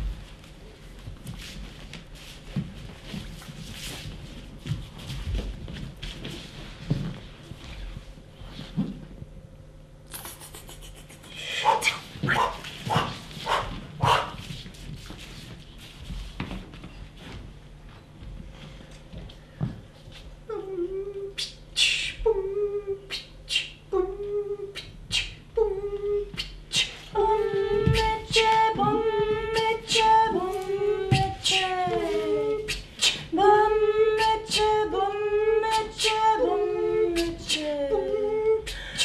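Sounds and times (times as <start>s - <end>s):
voices singing wordlessly: 27.1s - 38.6s.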